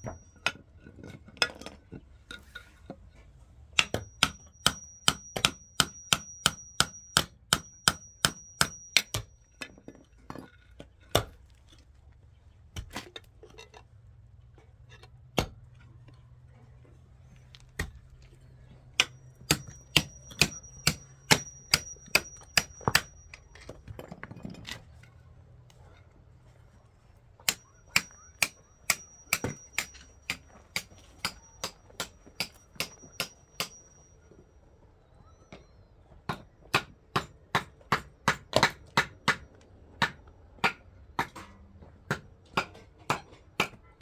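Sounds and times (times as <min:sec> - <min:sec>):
high metallic ringing: 0:00.0 - 0:00.6, 0:03.8 - 0:09.9, 0:18.2 - 0:24.9, 0:27.4 - 0:35.9.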